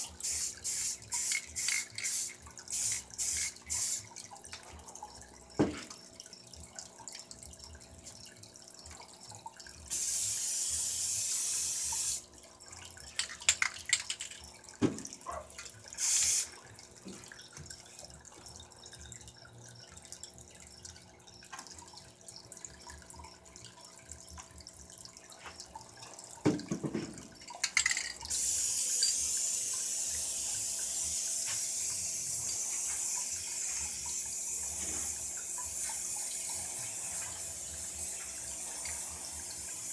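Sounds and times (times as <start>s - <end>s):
aerosol spray can hissing: 0.0s - 4.1s, 9.9s - 12.2s, 16.0s - 16.5s, 28.3s - 39.9s
cans knocking on table: 26.4s - 28.1s.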